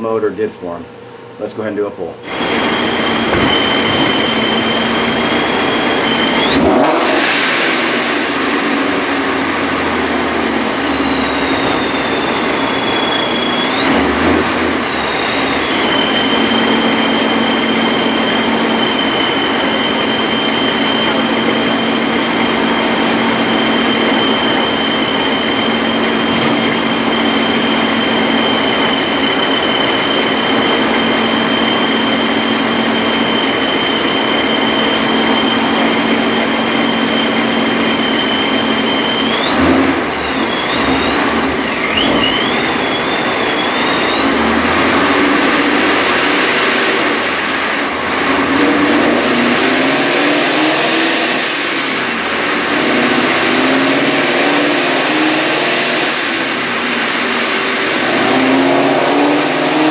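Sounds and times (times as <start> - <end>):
supercharger whine: 0.0 - 59.9
car engine revving: 2.2 - 59.9
dyno roller noise: 2.2 - 59.9.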